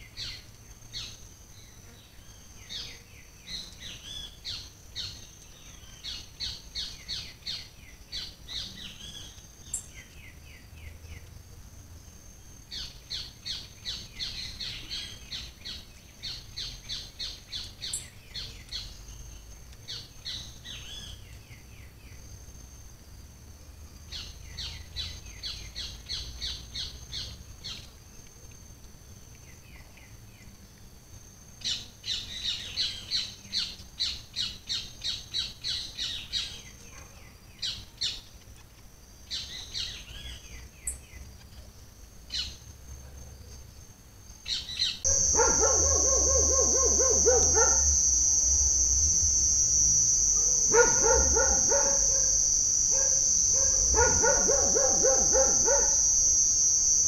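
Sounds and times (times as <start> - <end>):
dog barking: 36.8 - 37.3, 45.1 - 48.1, 50.7 - 52.3, 52.9 - 56.0
high-pitched insect drone: 45.0 - 57.0
birds chirping: 45.1 - 57.0.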